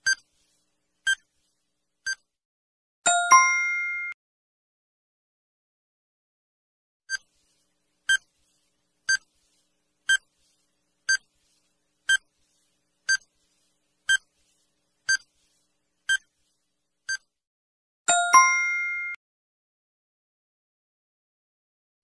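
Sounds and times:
two-note chime: 18.1 - 19.2.

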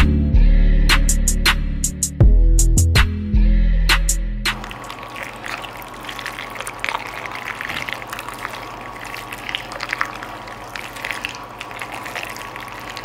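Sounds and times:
macaroni squelching in cheese sauce: 4.6 - 13.0.

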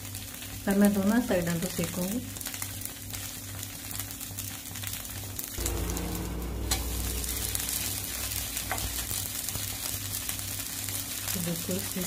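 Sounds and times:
dosa sizzling in oil: 0.0 - 12.0.

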